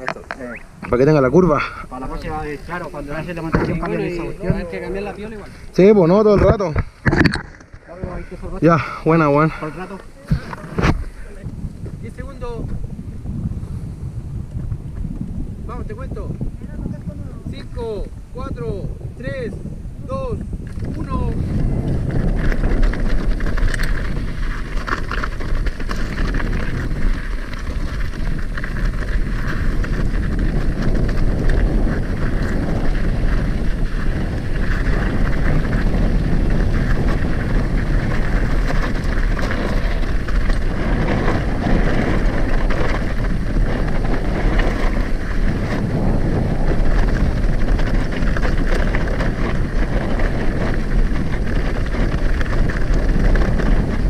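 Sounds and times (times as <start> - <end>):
wind buffeting microphone: 0.0 - 54.0
bike clicking and clattering: 20.5 - 54.0
tyres crunching over gravel: 21.8 - 54.0.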